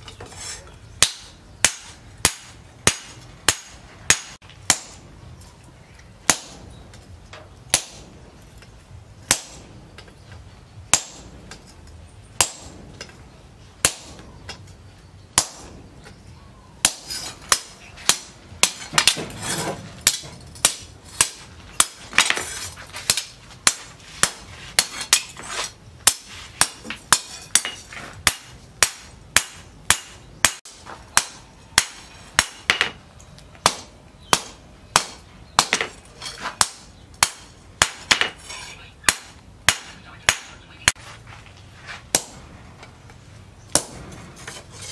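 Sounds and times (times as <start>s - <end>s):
hammer striking hot metal on anvil: 1.0s - 5.4s, 6.3s - 6.8s, 7.7s - 8.2s, 9.3s - 10.1s, 10.9s - 11.7s, 12.4s - 13.2s, 13.8s - 14.5s, 15.4s - 15.8s, 26.0s - 33.0s, 39.1s - 41.0s, 43.7s - 44.1s.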